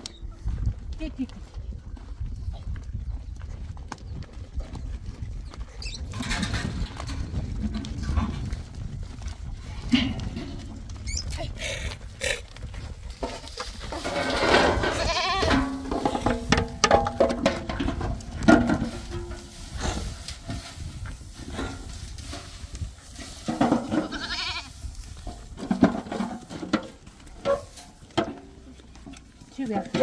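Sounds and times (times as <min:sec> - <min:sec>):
goats bleating: 0:14.8 - 0:15.7, 0:23.9 - 0:24.7.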